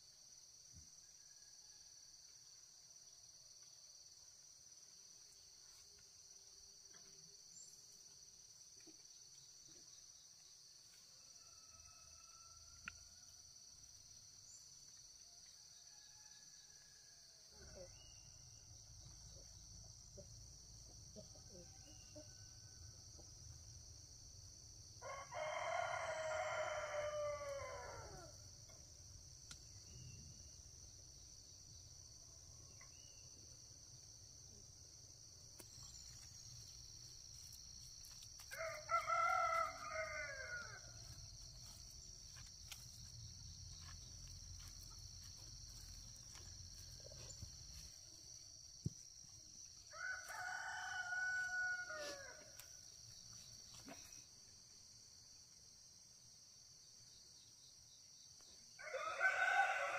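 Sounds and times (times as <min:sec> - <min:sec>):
rooster crowing: 0:25.0 - 0:28.4, 0:38.5 - 0:41.1, 0:49.9 - 0:52.6, 0:58.8 - 0:59.9.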